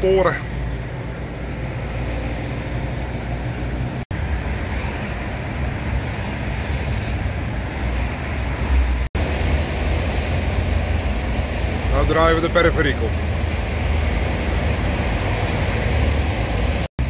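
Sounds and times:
diesel engine low rumble: 0.0 - 17.0
tyre and road noise: 0.0 - 17.0.

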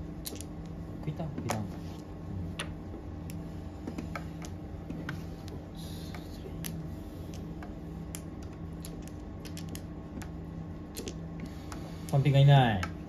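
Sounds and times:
steady low hum: 0.0 - 13.0
mahjong tiles clacking: 0.2 - 0.8, 5.5 - 11.2.

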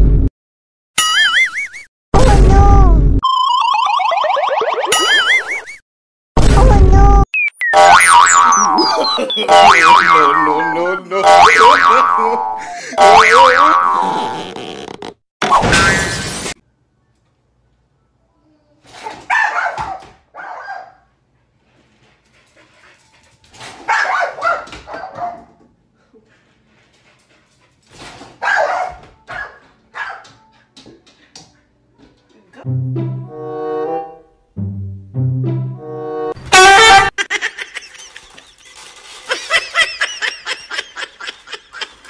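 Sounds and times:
person laughing: 8.7 - 13.1, 37.2 - 42.0
dog barking: 19.0 - 21.1, 23.8 - 25.6, 28.4 - 30.4.

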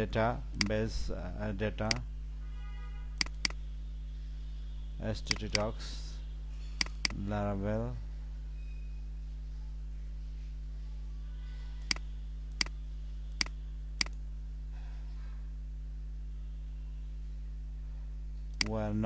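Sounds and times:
steady low hum: 0.0 - 19.0
computer mouse clicks: 3.2 - 3.6, 5.3 - 5.6, 11.8 - 14.2.

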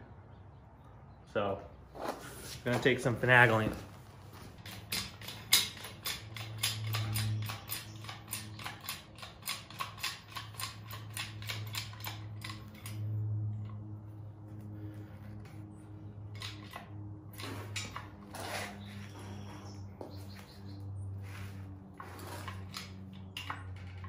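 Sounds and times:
rapid mechanical clicking: 4.6 - 13.2.

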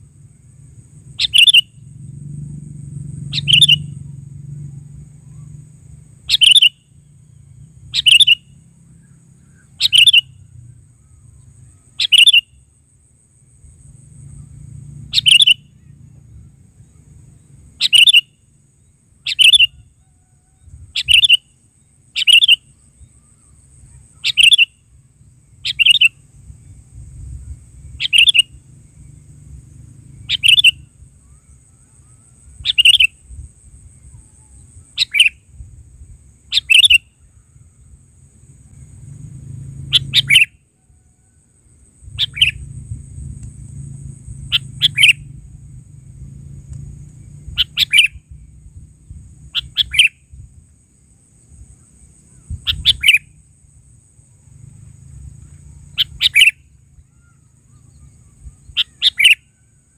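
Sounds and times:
bird calling: 1.2 - 1.8, 3.2 - 4.0, 6.2 - 12.6, 14.3 - 24.9, 25.6 - 26.3, 27.4 - 28.8, 30.1 - 35.5, 36.5 - 38.0, 39.8 - 41.4, 42.0 - 42.8, 44.3 - 45.5, 47.2 - 50.4, 51.7 - 53.4, 55.2 - 59.9.

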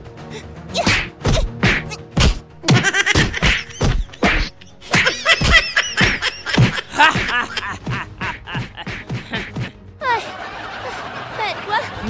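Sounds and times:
prop weapon whacks: 0.8 - 7.3
man laughing loudly: 2.6 - 12.0.

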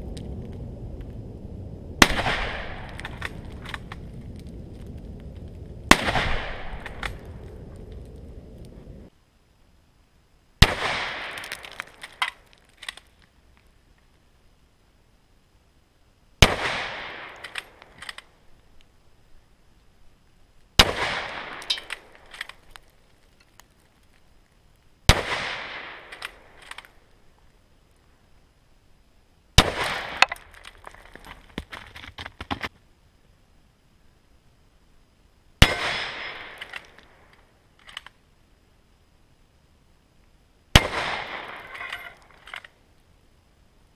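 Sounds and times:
rifle shots with echo: 2.0 - 3.3, 5.9 - 7.1, 10.6 - 11.4, 16.4 - 17.6, 20.8 - 22.0, 25.1 - 26.5, 29.6 - 30.3, 35.6 - 36.8, 40.7 - 41.8.

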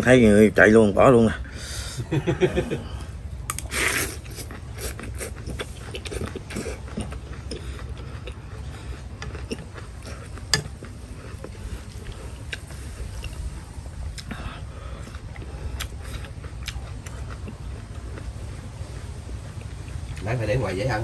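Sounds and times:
chewing: 3.4 - 20.4
slurping noodles: 3.6 - 13.6.

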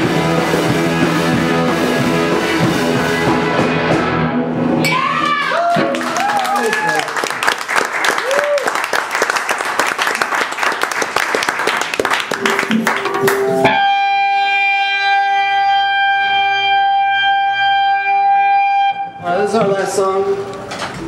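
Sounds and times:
live rock band playing: 0.0 - 5.2, 12.2 - 19.2
held electric guitar tone: 12.3 - 19.6.

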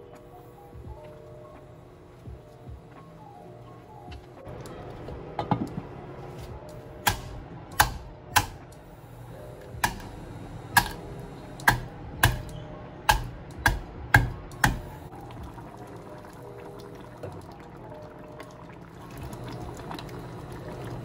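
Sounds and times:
soft background music: 0.0 - 21.0.

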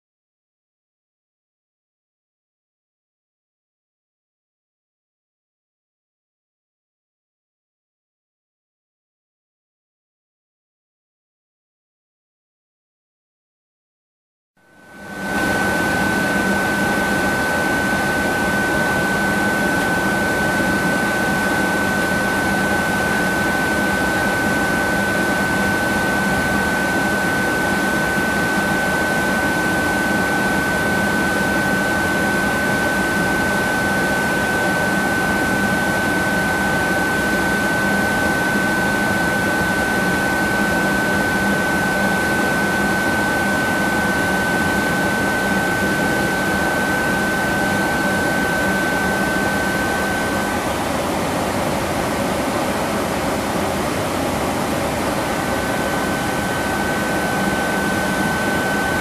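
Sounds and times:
airplane cabin airflow and engine: 14.7 - 59.0.

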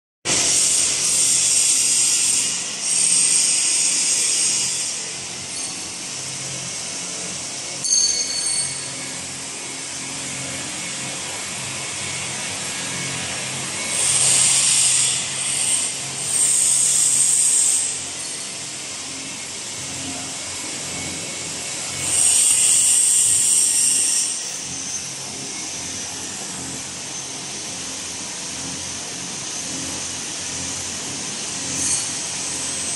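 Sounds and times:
loud hiss bursts: 0.3 - 5.1, 13.9 - 18.1, 22.0 - 24.7.

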